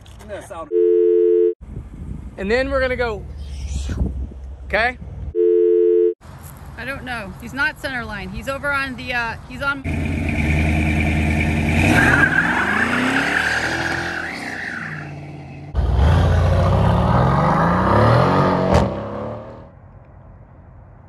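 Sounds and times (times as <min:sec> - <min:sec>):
car engine revving and accelerating: 0:09.9 - 0:14.4, 0:15.8 - 0:19.7.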